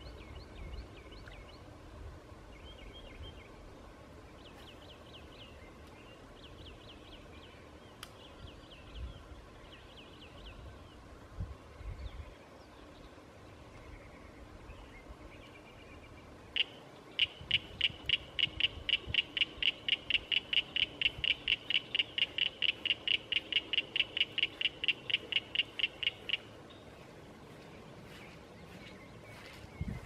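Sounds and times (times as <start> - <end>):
frog calling with clicking notes: 16.6 - 26.5.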